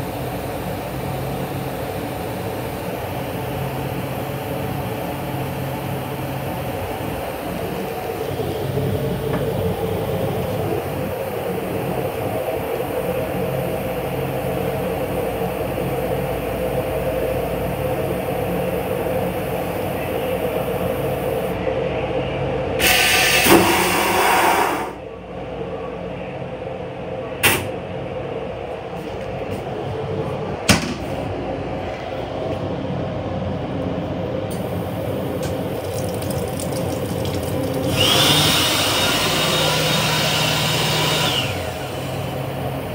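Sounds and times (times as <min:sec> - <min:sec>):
railcar rumble and hum: 0:00.0 - 0:38.2, 0:41.3 - 0:42.9
toilet flushing: 0:34.6 - 0:42.6.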